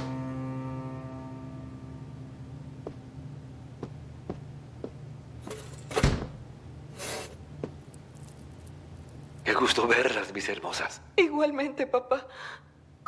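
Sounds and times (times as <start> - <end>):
low steady hum: 0.0 - 13.0
soft footsteps: 2.8 - 5.4, 7.4 - 9.4.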